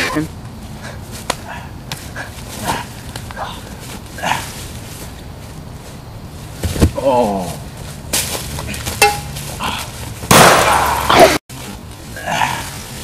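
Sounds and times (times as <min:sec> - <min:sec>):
scuffling in dry leaves: 0:02.1 - 0:13.0.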